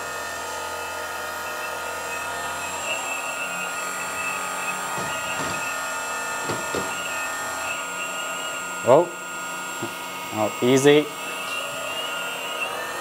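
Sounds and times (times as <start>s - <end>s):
hydraulic pumps whining: 0.0s - 13.0s
faint knocks: 4.9s - 5.8s, 6.4s - 7.2s.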